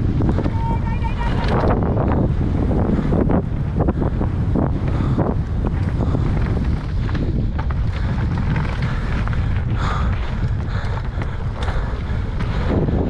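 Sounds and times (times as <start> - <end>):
wind buffeting microphone: 0.0 - 13.0
bike clicks and knocks: 3.5 - 13.0.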